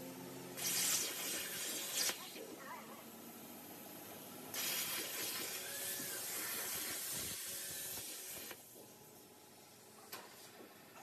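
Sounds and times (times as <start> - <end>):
cutting torch hissing: 0.6 - 2.4, 4.5 - 8.6.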